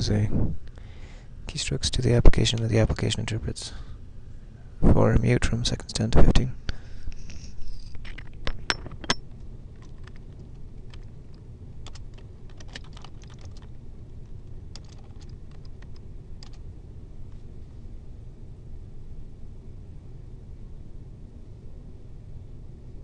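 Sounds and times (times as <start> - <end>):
low steady hum: 0.0 - 23.0
keyboard typing clicks: 9.8 - 16.6.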